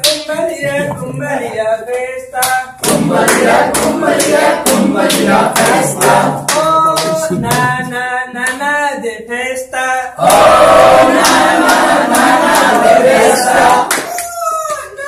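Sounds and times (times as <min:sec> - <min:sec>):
hand claps: 0:00.0 - 0:00.9, 0:01.9 - 0:07.8, 0:10.2 - 0:14.8
group singing: 0:02.1 - 0:14.1.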